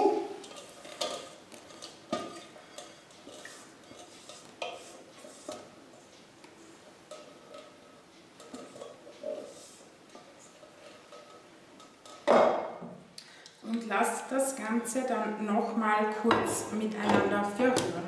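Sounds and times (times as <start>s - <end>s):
utensil scraping metal pot: 0.4s - 5.8s, 6.7s - 12.2s.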